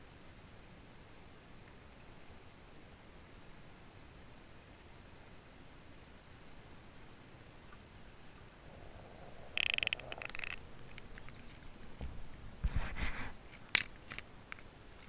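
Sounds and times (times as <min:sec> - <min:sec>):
water crackling burst: 0:09.3 - 0:11.9.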